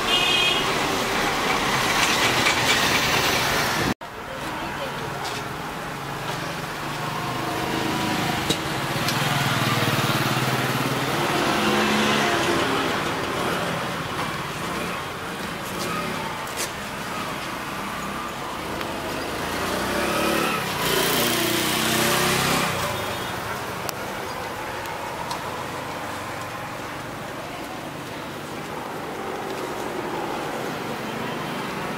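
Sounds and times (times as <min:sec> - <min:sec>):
vehicles passing: 0:00.0 - 0:31.9.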